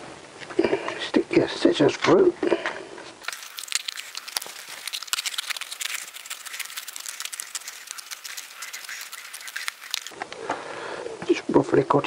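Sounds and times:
small scissors snipping paper: 0:03.2 - 0:10.1
paper crinkling: 0:03.2 - 0:10.2.

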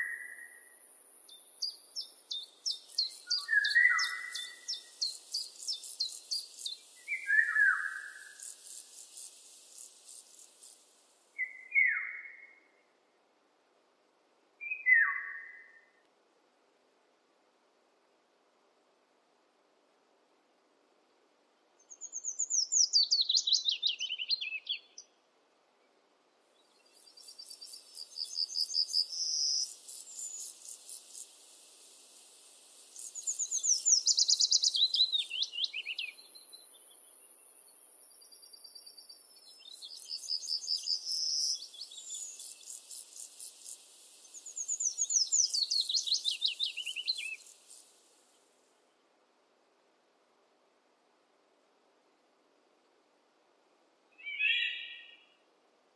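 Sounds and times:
songbird falling song phrase: 0:00.0 - 0:08.6, 0:44.3 - 0:47.6, 0:54.2 - 0:55.2.

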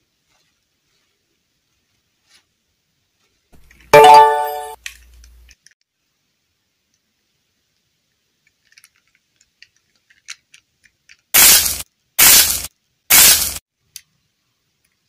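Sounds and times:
harsh noise bursts: 0:11.4 - 0:13.6.

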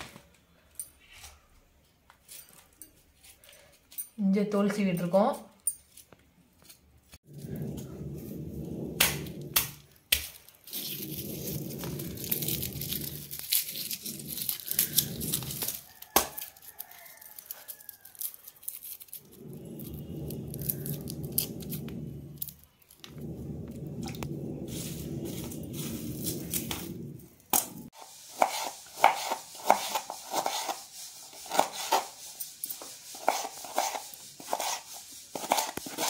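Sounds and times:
garlic skins crackling and tearing: 0:12.2 - 0:19.3
low hum: 0:19.2 - 0:27.9.

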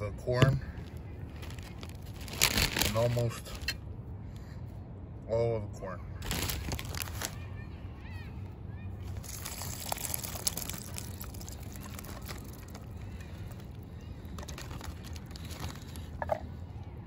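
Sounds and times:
plastic bag crinkling: 0:00.9 - 0:03.8, 0:06.2 - 0:07.4, 0:09.0 - 0:16.4
liquid pouring: 0:09.3 - 0:12.7.

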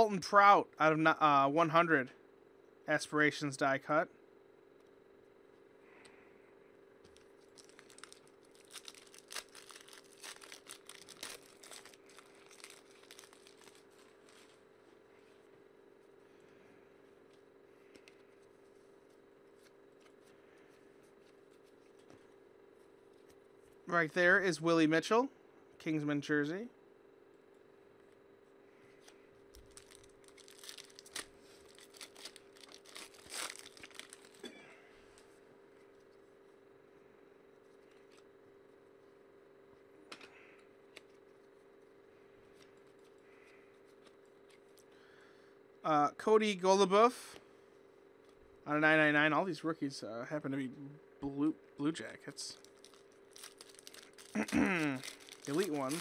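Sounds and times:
foil wrapper tearing and crinkling: 0:07.1 - 0:14.6, 0:29.5 - 0:34.5, 0:52.5 - 0:56.0.

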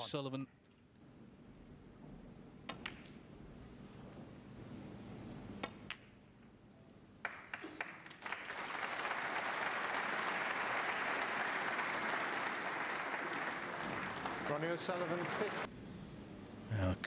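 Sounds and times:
snooker balls clicking: 0:02.6 - 0:03.3, 0:05.6 - 0:06.4
crowd applause: 0:07.5 - 0:15.7.

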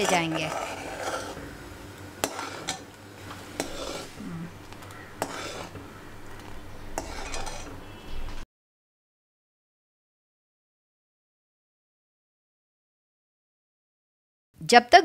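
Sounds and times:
spoon scraping a metal pan: 0:00.0 - 0:01.5, 0:02.2 - 0:08.4.

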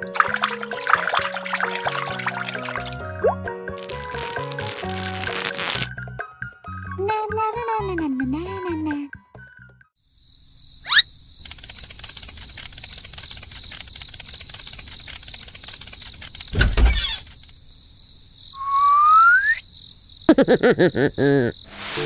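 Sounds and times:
crickets chirping: 0:00.0 - 0:03.0, 0:10.0 - 0:22.0
rising whistle: 0:18.6 - 0:19.6.

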